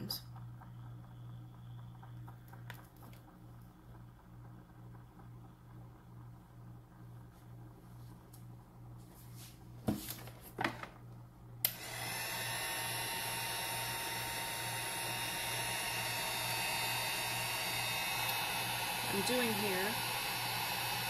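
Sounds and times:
faint hum: 0.0 - 11.9
heat gun blowing air: 11.6 - 21.0.

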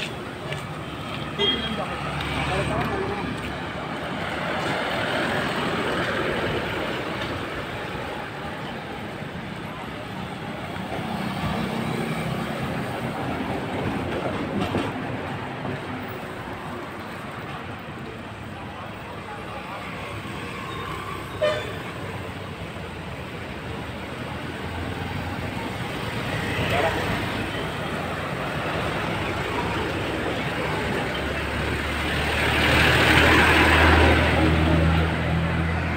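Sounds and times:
busy road hum: 0.0 - 35.9.

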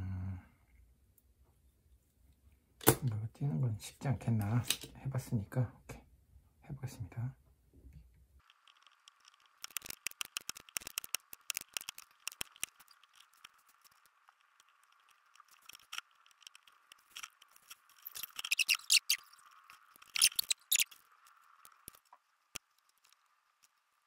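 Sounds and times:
scratchy ticks and clicks: 8.0 - 24.0.

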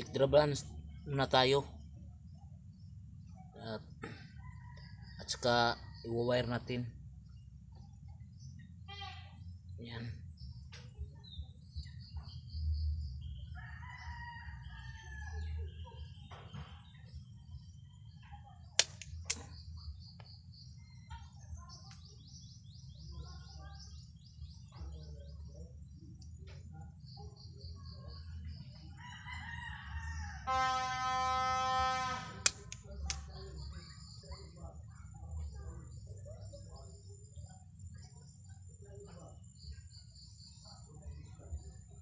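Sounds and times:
rooster crowing: 29.0 - 32.1.

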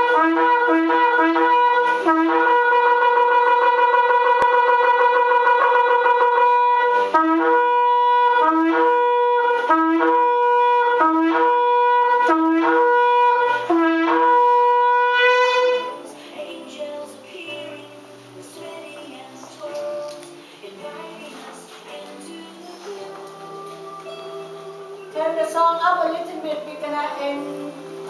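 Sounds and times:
shofar blasts: 0.0 - 16.1.

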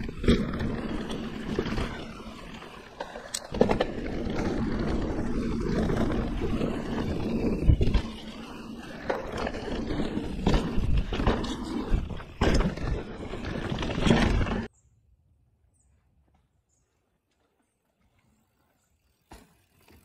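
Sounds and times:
bike knocking and rattling: 0.0 - 14.7
wind and tyre rumble: 0.0 - 14.7.

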